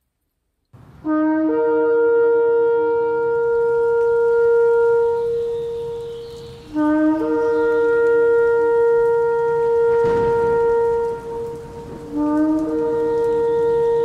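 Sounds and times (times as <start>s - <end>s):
shofar blasts: 1.0s - 14.0s.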